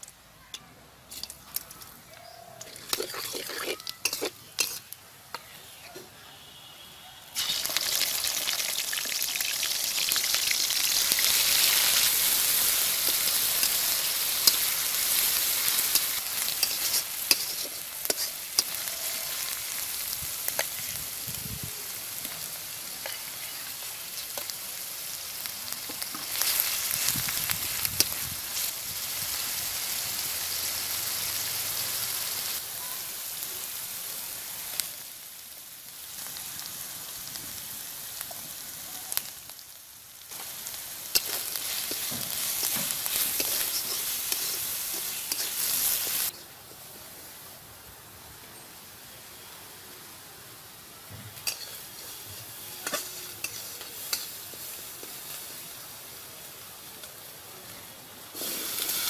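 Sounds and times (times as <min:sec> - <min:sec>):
low frying of leaves: 0:00.0 - 0:59.0
spice paste sizzling in oil: 0:01.1 - 0:59.0
metal spatula scraping pan: 0:02.7 - 0:04.9, 0:51.4 - 0:54.4.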